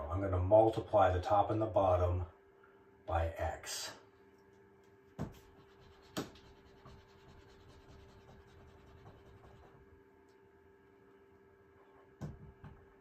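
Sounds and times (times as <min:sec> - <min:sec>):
marker scratching on whiteboard: 0:05.2 - 0:09.8.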